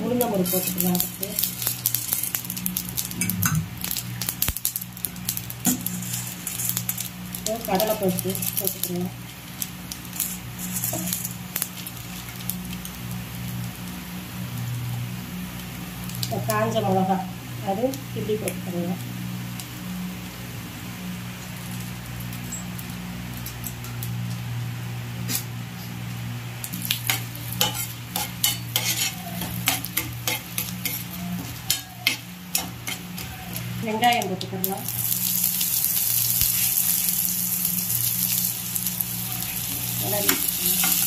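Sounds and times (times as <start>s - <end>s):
seeds sizzling in hot oil: 0.0s - 24.5s, 25.2s - 41.0s
low hum: 3.0s - 4.5s
spatula scraping and clicking on pan: 26.8s - 33.7s.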